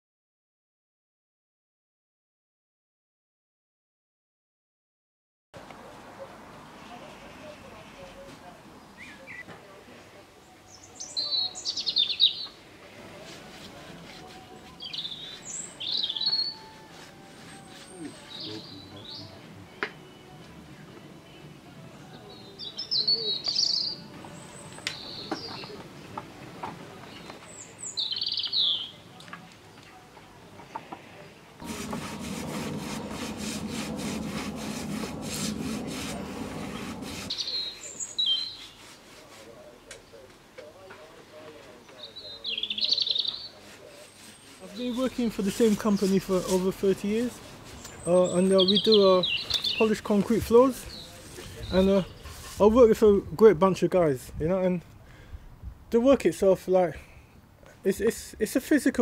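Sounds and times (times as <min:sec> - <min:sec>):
songbirds chirping and trilling: 0:06.2 - 0:54.2
paintbrush scrubbing wood: 0:13.2 - 0:18.5, 0:31.6 - 0:37.4, 0:38.2 - 0:39.6, 0:43.5 - 0:52.8.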